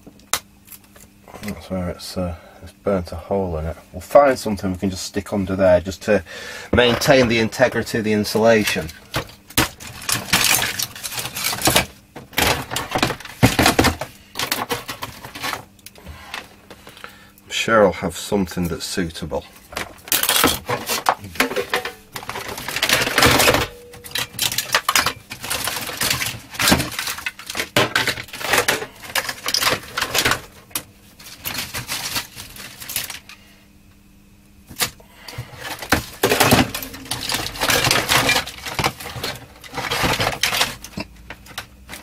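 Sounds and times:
small hard objects clattering: 6.8 - 15.7, 19.7 - 33.3, 35.6 - 42.0.

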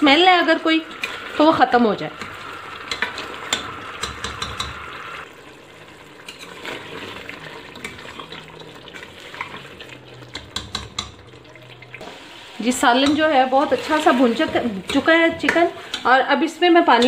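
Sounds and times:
chicken sizzling in oil: 0.0 - 17.0
spoon knocking against pot: 2.9 - 4.8, 10.3 - 11.2.

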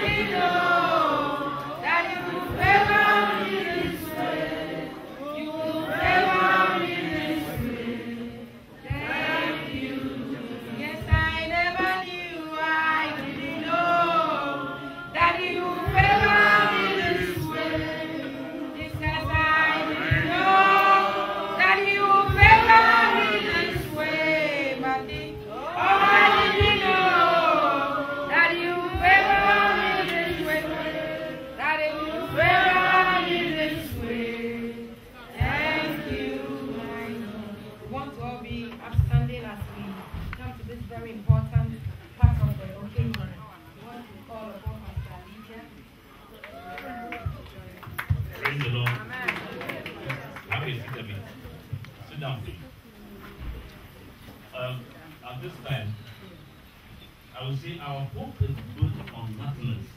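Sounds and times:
voices singing along: 0.0 - 39.8
woman singing into microphone: 10.8 - 18.0, 18.7 - 30.8.

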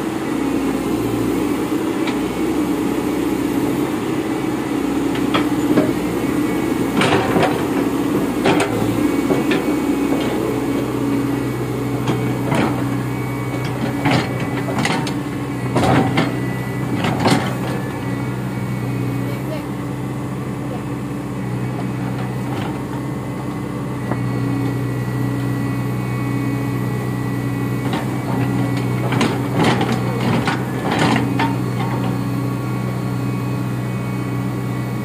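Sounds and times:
excavator diesel engine hum: 0.0 - 35.0
metallic clanks of steel tracks: 27.9 - 32.2.

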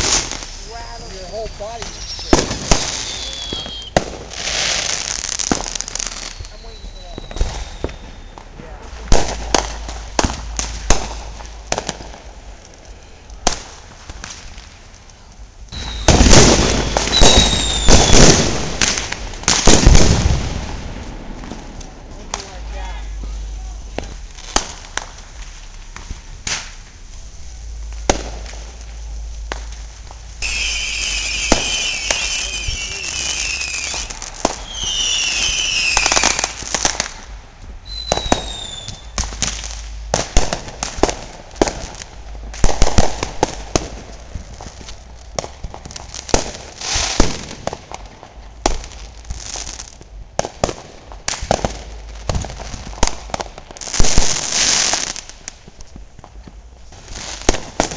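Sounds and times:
whistling firework: 0.0 - 14.5, 15.2 - 26.8, 27.5 - 44.1
firecrackers bangs and pops: 0.0 - 57.9.

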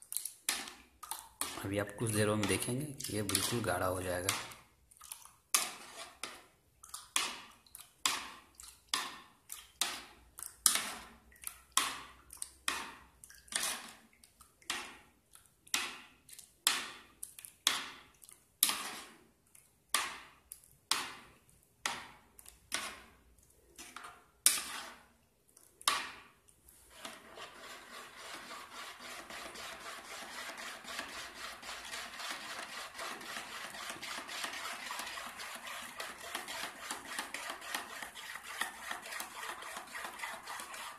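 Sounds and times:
spoon stirring gel in bowl: 0.0 - 40.9.

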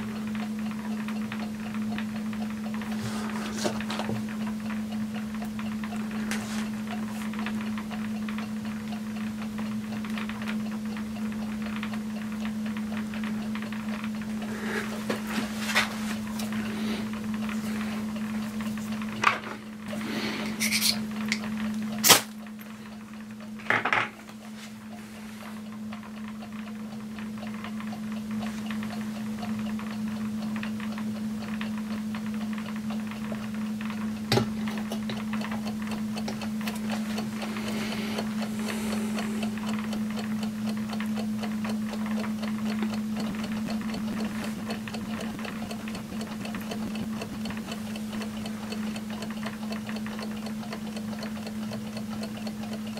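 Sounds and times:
low hum: 42.0 - 50.0.

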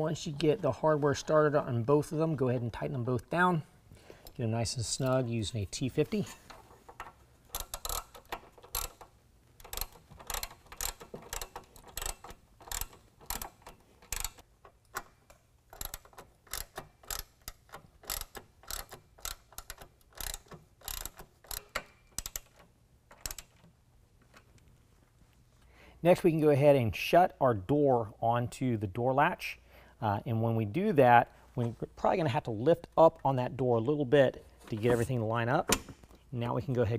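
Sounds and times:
hand ratchet clicking: 6.5 - 23.7.

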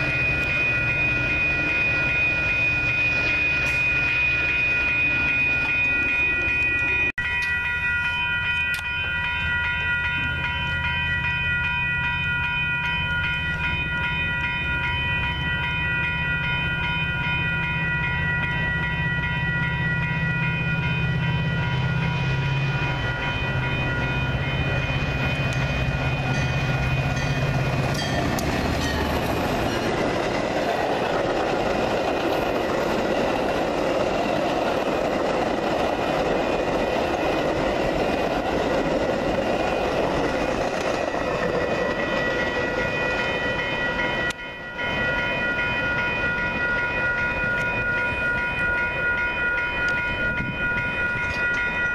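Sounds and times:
crossing warning bells ringing: 0.0 - 51.9
train engine drone: 0.0 - 51.9
train wheels rushing on rails: 17.7 - 51.9.

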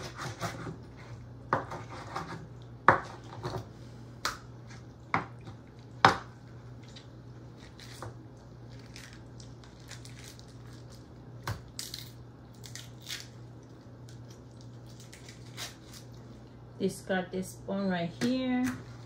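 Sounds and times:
knife chopping on wooden board: 0.0 - 0.8, 1.5 - 3.6.

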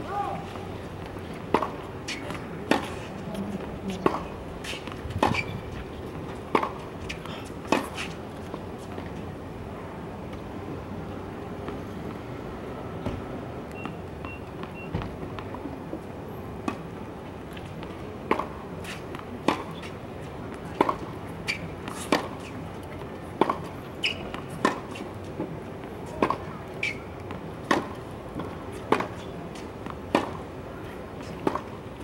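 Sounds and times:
tennis ball bouncing: 1.0 - 2.9, 3.6 - 5.4, 6.3 - 6.8, 17.8 - 19.9, 20.7 - 22.4, 23.4 - 30.4, 31.3 - 31.7
racket striking tennis ball: 1.5 - 3.0, 6.5 - 6.8, 27.6 - 29.2, 30.1 - 30.4.

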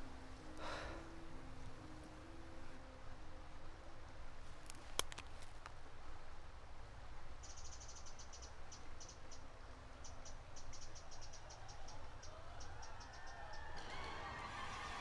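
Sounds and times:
low steady rumble: 0.0 - 4.6
crickets chirping: 7.4 - 14.0.

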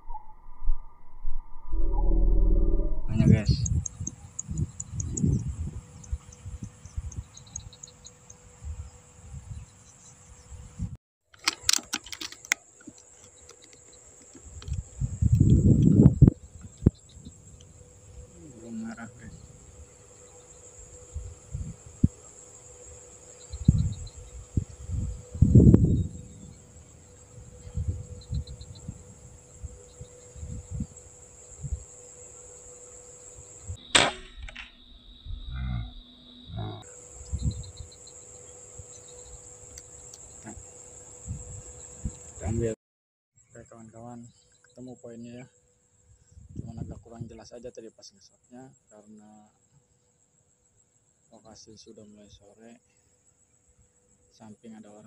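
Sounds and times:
microphone handling rumble: 1.2 - 7.1, 14.4 - 17.6, 46.4 - 47.4
high-pitched insect chorus: 1.8 - 42.8, 43.4 - 55.0
sharp clicks: 3.6 - 5.3, 11.3 - 16.0
air rifle shot: 33.8 - 34.8.

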